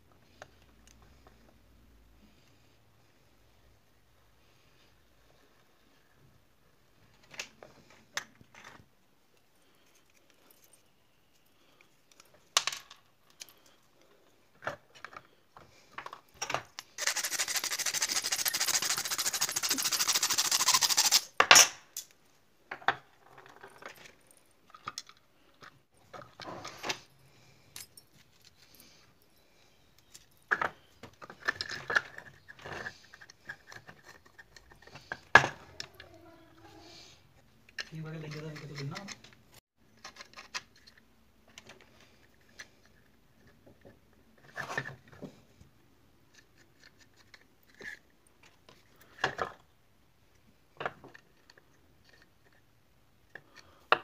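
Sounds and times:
small parts clicking and clinking: 0:07.2 - 0:15.3, 0:15.9 - 0:22.2, 0:23.2 - 0:36.1, 0:46.3 - 0:49.6, 0:50.8 - 0:54.0.

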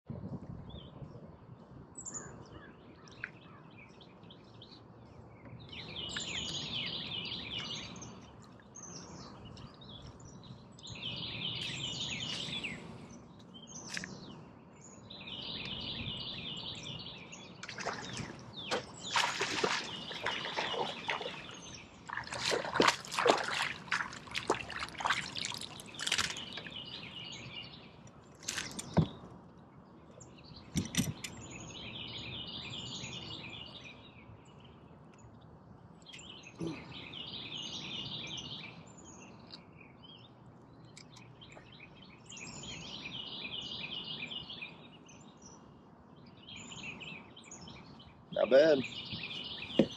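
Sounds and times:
songbird trilling: 0:15.1 - 0:27.9
fish splashing in water: 0:17.6 - 0:26.8.

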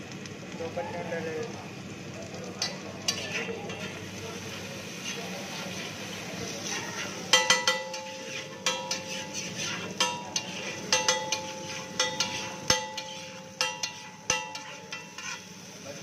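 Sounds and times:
griddle sizzling: 0:00.0 - 0:16.0
metal spatula clinking on griddle: 0:02.6 - 0:04.0, 0:06.6 - 0:15.8.

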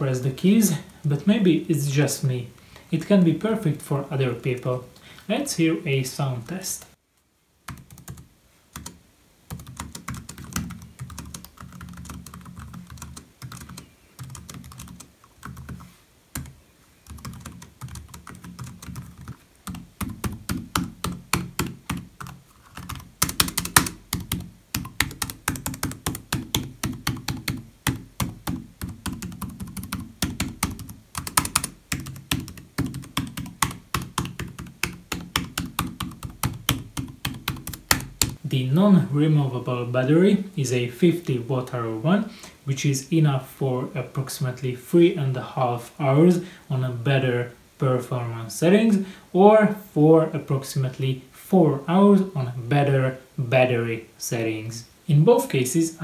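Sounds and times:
laptop keyboard typing: 0:07.6 - 0:38.4.

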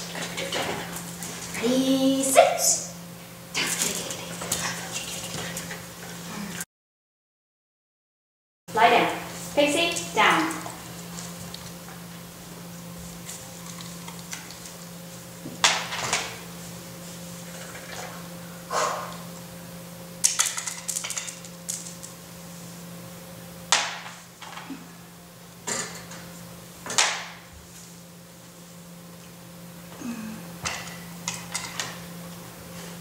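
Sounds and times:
low steady hum: 0:08.7 - 0:33.0.

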